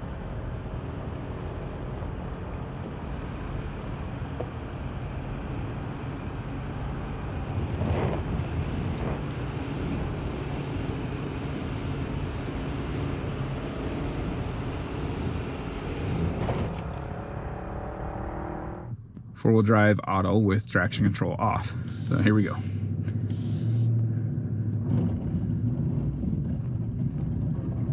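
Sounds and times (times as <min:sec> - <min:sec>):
engine running under load: 0:21.5 - 0:27.9.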